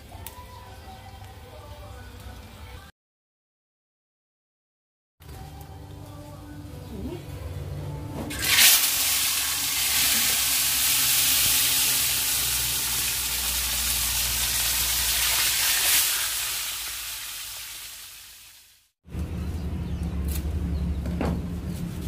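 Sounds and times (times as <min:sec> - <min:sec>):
fish sizzling in hot oil: 0:08.3 - 0:18.9.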